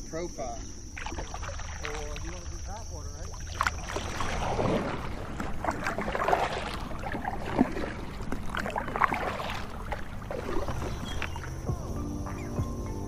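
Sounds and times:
kayak paddle splashing: 0:00.6 - 0:12.6
water washing along hull: 0:00.8 - 0:12.5.

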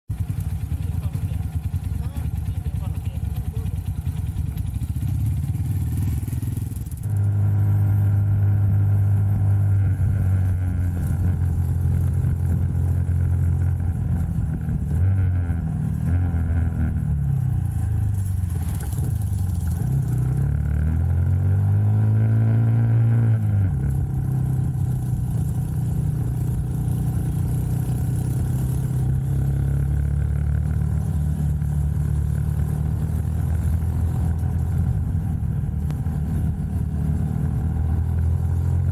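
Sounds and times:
motorcycles idling: 0:00.1 - 0:20.5
small motorcycle engine running: 0:00.1 - 0:38.9
wind and road noise: 0:00.1 - 0:38.9.

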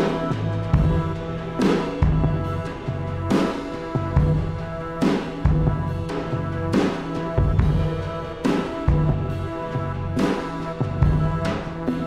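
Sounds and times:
low drum beats: 0:00.0 - 0:12.0
steady held tones: 0:00.0 - 0:12.0.

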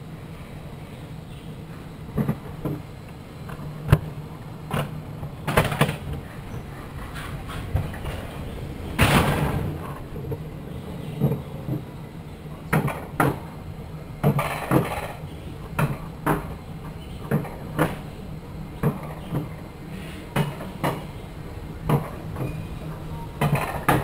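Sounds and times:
cart rumbling on steel rails: 0:01.3 - 0:24.0
wheels knocking on rails: 0:02.1 - 0:12.0, 0:12.7 - 0:13.5, 0:14.2 - 0:18.1, 0:18.8 - 0:19.6, 0:20.3 - 0:21.2, 0:21.8 - 0:22.6, 0:23.4 - 0:24.0.

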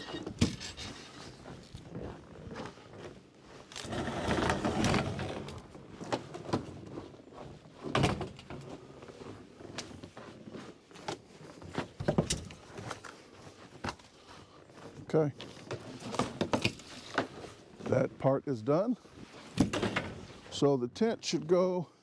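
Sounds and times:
knocks and thumps: 0:00.2 - 0:00.9
metal table scraping on wood: 0:03.8 - 0:05.6.

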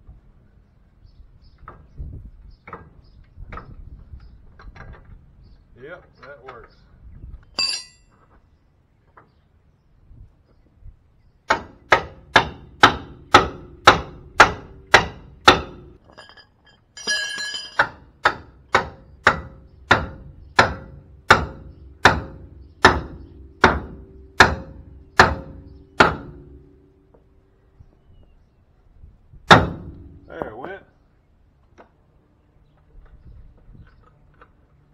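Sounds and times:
metallic ringing clatter: 0:07.6 - 0:08.1, 0:16.0 - 0:18.0
hammer blows on metal: 0:17.8 - 0:27.3.

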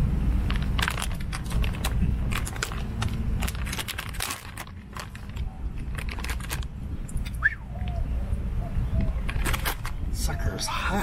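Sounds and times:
plastic pouch crinkling: 0:00.5 - 0:06.8.

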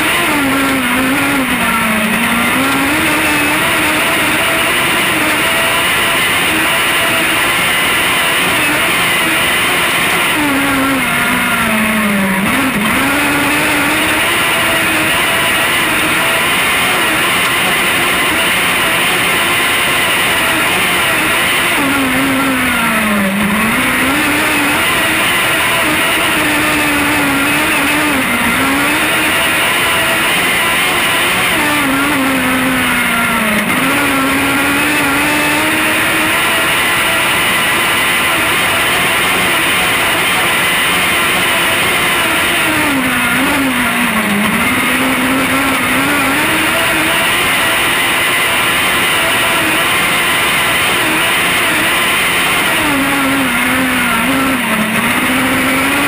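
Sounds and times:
race car engine at high revs: 0:00.0 - 0:56.0.

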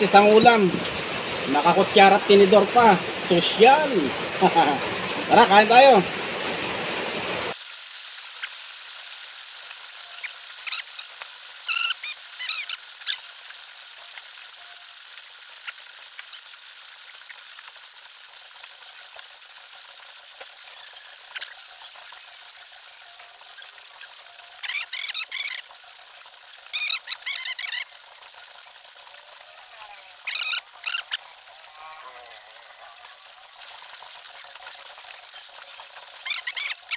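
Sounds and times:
pouring rain: 0:00.0 - 0:36.9.

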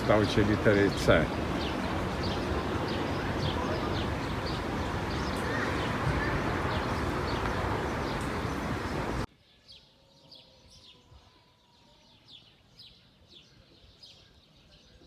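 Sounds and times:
faint birds chirping: 0:00.0 - 0:15.0
wind noise on microphone: 0:01.3 - 0:09.3.

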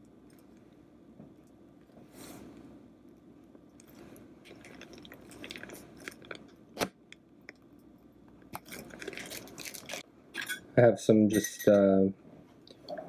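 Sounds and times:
plastic piping bag crinkling: 0:08.6 - 0:10.0.

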